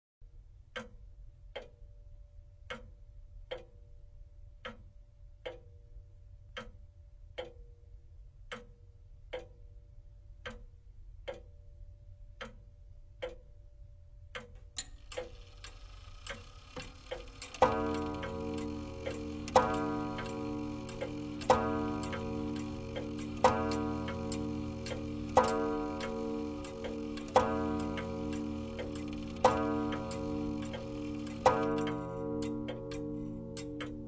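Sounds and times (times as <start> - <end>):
pendulum clock ticking: 2.6 - 3.8, 4.6 - 5.8, 7.4 - 7.8, 8.5 - 9.6, 11.3 - 11.5, 14.3 - 34.0.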